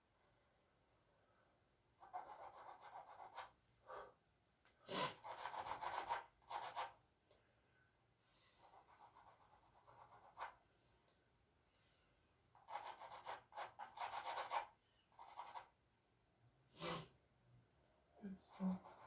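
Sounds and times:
charcoal scratching on canvas: 0:04.9 - 0:07.0, 0:12.6 - 0:15.7, 0:18.5 - 0:19.0.

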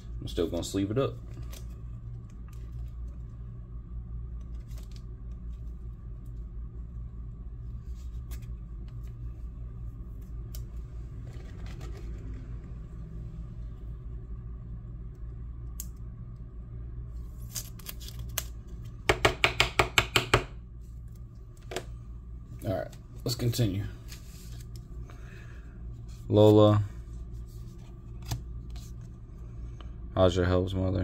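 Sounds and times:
low hum: 0:00.0 - 0:19.3, 0:20.4 - 0:31.0
cards rustling: 0:04.4 - 0:06.4, 0:10.2 - 0:12.7, 0:17.3 - 0:19.0, 0:22.8 - 0:29.2.

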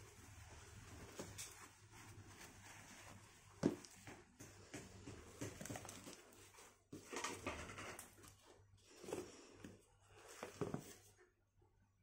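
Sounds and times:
tissue paper rustling: 0:00.0 - 0:04.4
cardboard box being handled: 0:10.2 - 0:11.1.

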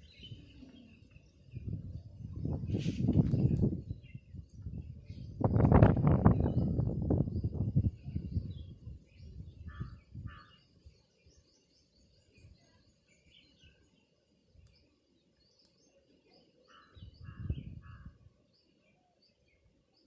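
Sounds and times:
small birds chirping: 0:00.0 - 0:20.0
low rumbling microphone noise: 0:01.0 - 0:10.4.

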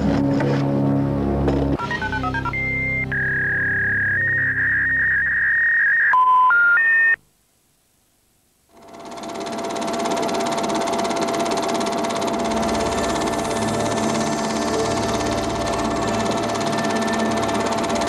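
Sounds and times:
stepped electronic beeps: 0:01.8 - 0:06.8
film projector clattering: 0:08.8 - 0:18.0.

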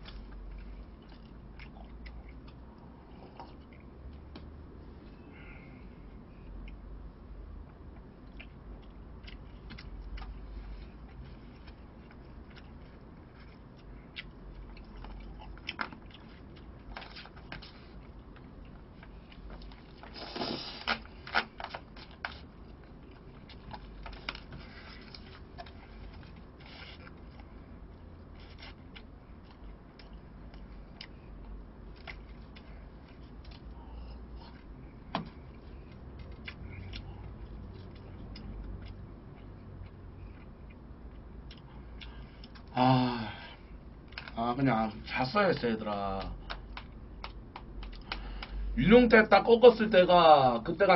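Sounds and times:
chewing: 0:00.0 - 0:04.2, 0:07.7 - 0:42.8, 0:46.2 - 0:48.6.

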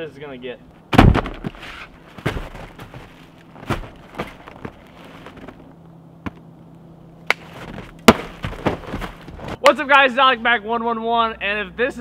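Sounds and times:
parcels thumping on a box: 0:02.2 - 0:05.5.

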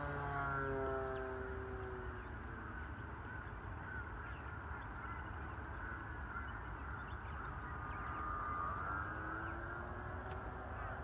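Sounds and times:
model plane electric motor hum: 0:00.0 - 0:02.8, 0:07.7 - 0:11.0.

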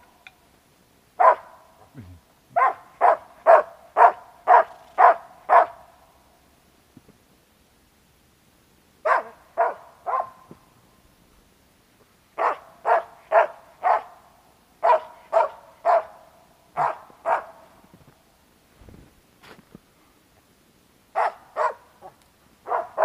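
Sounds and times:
dog barking sharply: 0:01.2 - 0:01.5, 0:02.6 - 0:05.8, 0:09.1 - 0:10.4, 0:12.4 - 0:14.1, 0:14.8 - 0:16.1, 0:16.8 - 0:17.6, 0:21.2 - 0:21.8, 0:22.7 - 0:23.0.

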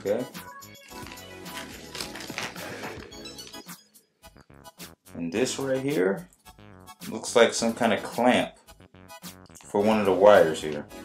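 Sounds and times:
background music: 0:00.0 - 0:11.0
plastic bag crinkling: 0:00.8 - 0:03.7.

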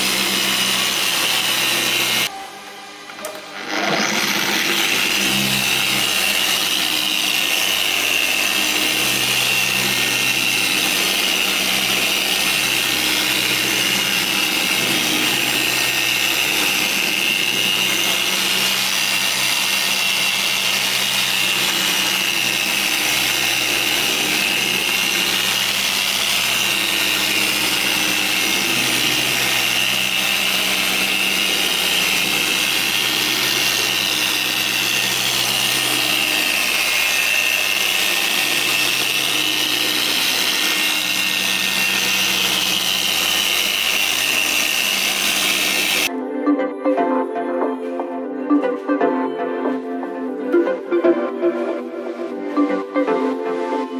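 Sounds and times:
machine polisher whining: 0:00.0 - 0:46.1.

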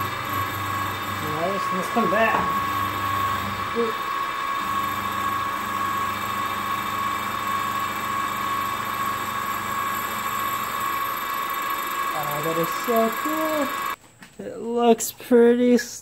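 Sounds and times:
milling machine cutting metal: 0:00.0 - 0:14.0.

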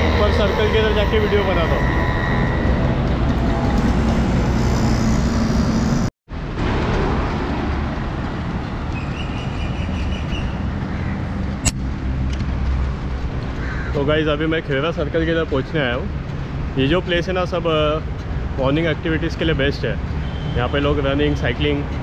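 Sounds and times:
road traffic noise: 0:00.0 - 0:22.0
sharp click: 0:11.6 - 0:12.4.

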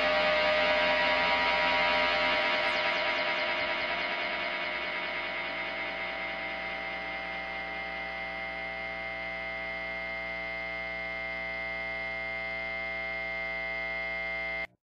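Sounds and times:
amplifier hum and feedback: 0:00.0 - 0:14.8.

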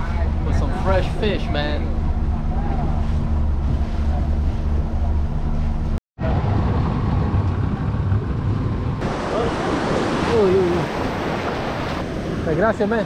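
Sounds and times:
outboard motor running: 0:00.0 - 0:06.0
water rushing past hull: 0:00.0 - 0:13.0
water splashing: 0:00.0 - 0:13.0.

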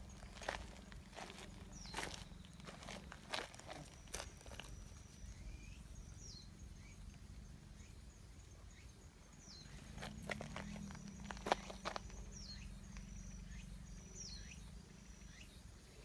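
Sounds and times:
footsteps on dirt path: 0:00.0 - 0:05.3, 0:09.7 - 0:12.6.

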